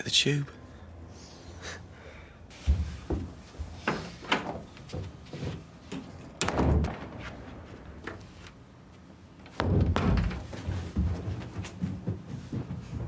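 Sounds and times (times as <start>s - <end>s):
knocks and thumps: 9.4s - 13.0s.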